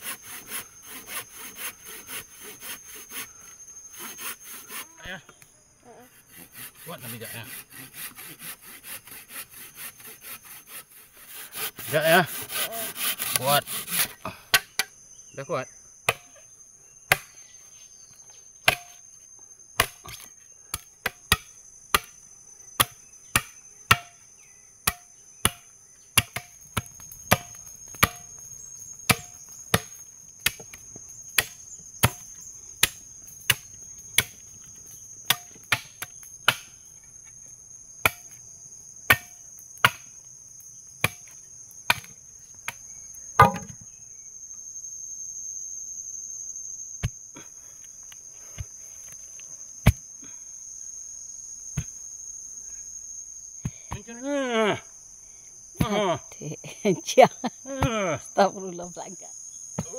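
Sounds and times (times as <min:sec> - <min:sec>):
high insect drone: 0:00.0 - 0:59.9
chopping strikes on wood: 0:16.1 - 0:16.3, 0:17.1 - 0:17.3, 0:18.6 - 0:19.0, 0:19.8 - 0:22.1, 0:22.8 - 0:24.2, 0:24.8 - 0:28.3, 0:29.1 - 0:30.8, 0:31.4 - 0:34.4, 0:35.2 - 0:36.8, 0:38.0 - 0:38.4, 0:39.1 - 0:40.1, 0:41.0 - 0:42.8, 0:43.4 - 0:43.8.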